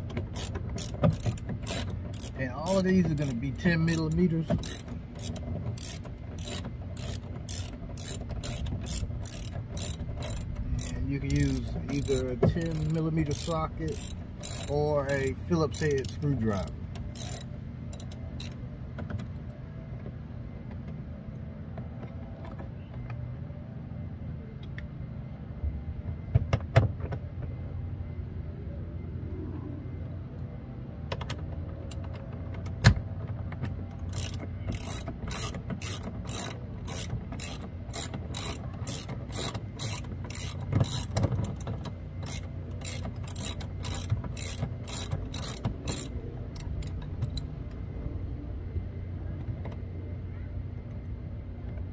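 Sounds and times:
hand ratchet clicking: 0:00.1 - 0:18.6, 0:34.0 - 0:47.4.

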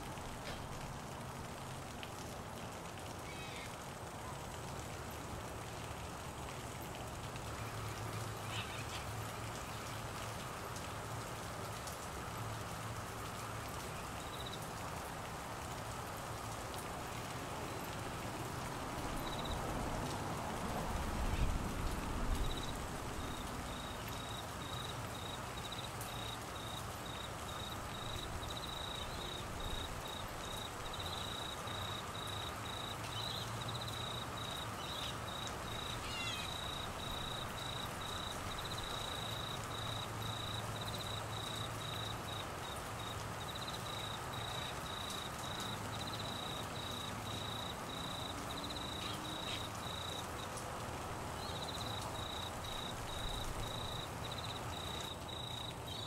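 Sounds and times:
steady rain hiss: 0:00.0 - 0:56.0
insect chirping trill: 0:22.4 - 0:50.4, 0:51.4 - 0:56.0.

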